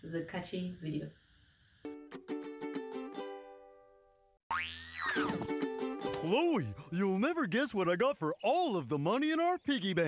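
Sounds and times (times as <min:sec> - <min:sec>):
cartoon sound effect sliding up: 0:04.5 - 0:05.4
plucked-string jingle: 0:04.5 - 0:06.8.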